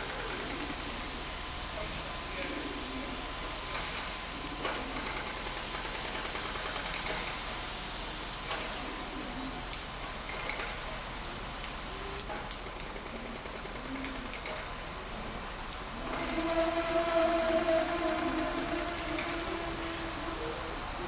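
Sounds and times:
railbus engine running: 15.1 - 21.0.

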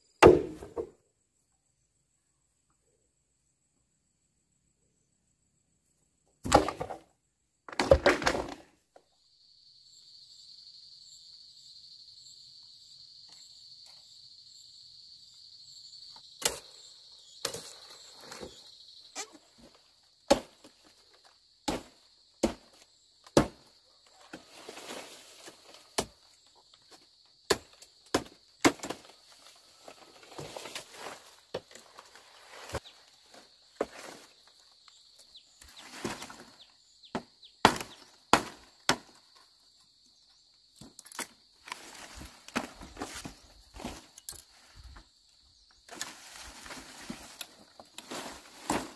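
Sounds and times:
machete chopping stalks: 0.2 - 0.9, 20.3 - 20.7, 21.6 - 23.7, 27.5 - 29.1, 37.1 - 39.2
high insect buzz: 9.2 - 20.1
leaves rustling: 45.9 - 48.9.

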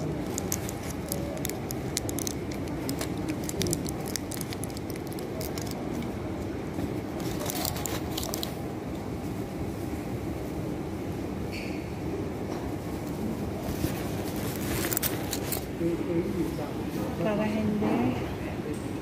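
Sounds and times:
blister pack crackling: 0.0 - 6.2, 7.2 - 8.6
low background noise: 0.0 - 19.0.

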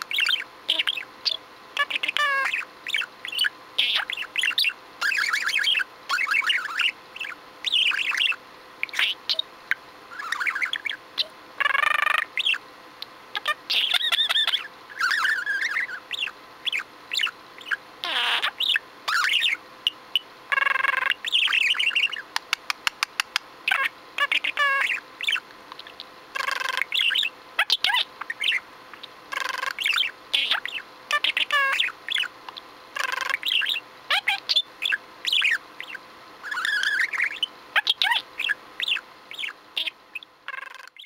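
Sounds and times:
budgerigar chattering: 0.0 - 9.4, 10.2 - 12.6, 13.4 - 19.6, 20.5 - 22.2, 22.9 - 25.4, 26.4 - 28.6, 29.3 - 32.3, 33.0 - 41.0
budgerigar mimicking human phrases: 0.7 - 2.6, 23.7 - 25.0, 29.3 - 31.9.

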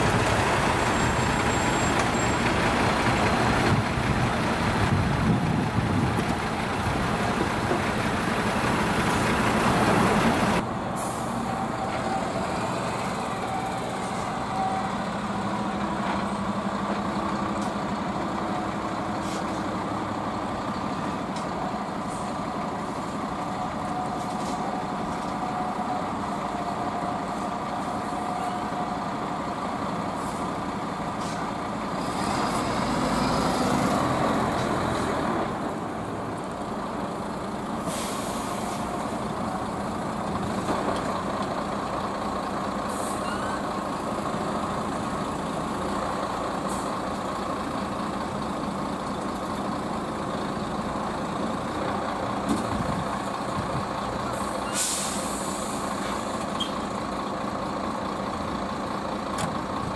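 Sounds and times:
diesel truck engines: 0.0 - 59.9
air-brake hisses: 37.8 - 38.9, 54.4 - 56.7.

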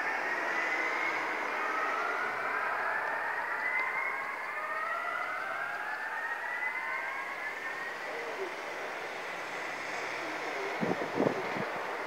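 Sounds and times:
electronic sirens rising in pitch: 0.0 - 12.0.

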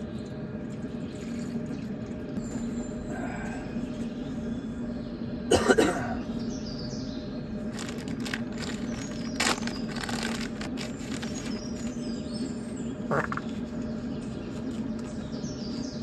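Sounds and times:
low hum: 0.0 - 16.0
cough-like burst: 5.5 - 6.3.

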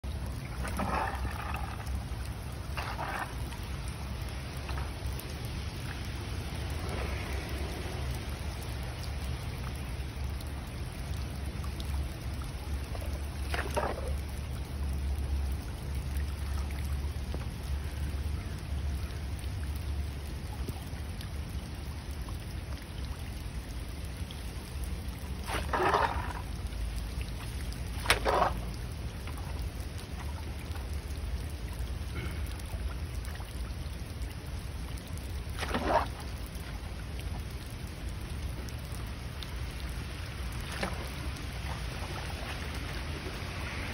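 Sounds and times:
water rushing down drain: 0.0 - 43.9
rake swishing through water: 0.2 - 8.0, 12.9 - 14.2, 25.2 - 30.8, 35.4 - 36.9, 40.5 - 43.9.

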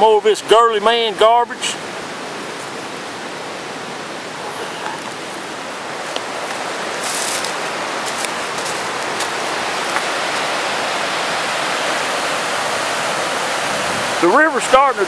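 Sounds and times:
river water rushing over rocks: 0.0 - 15.0
light crackles: 6.0 - 10.4.

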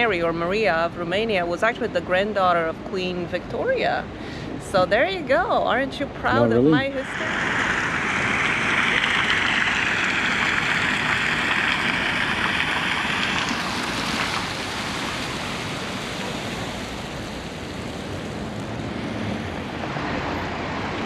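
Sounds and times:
rushing water: 6.4 - 21.0.

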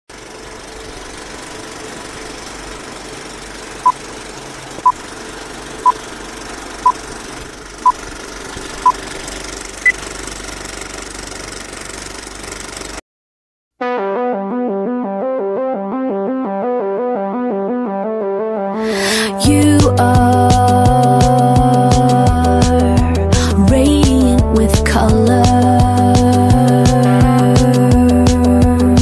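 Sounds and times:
film projector clattering whir: 0.1 - 13.0.

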